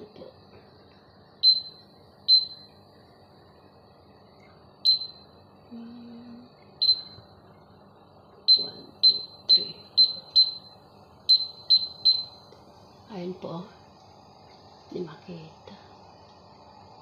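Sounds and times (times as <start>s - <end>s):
short high-pitched beeps: 1.4s - 2.7s, 4.8s - 5.3s, 6.8s - 7.2s, 8.5s - 12.5s.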